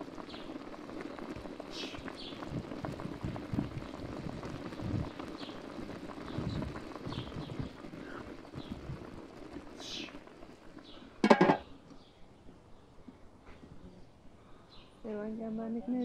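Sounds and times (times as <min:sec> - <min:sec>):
broth bubbling in a pot: 0:00.0 - 0:12.0.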